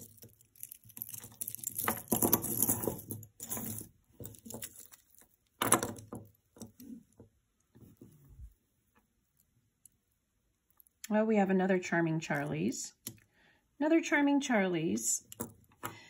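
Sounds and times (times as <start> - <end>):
small metallic jewelry clinks: 0.0 - 6.0.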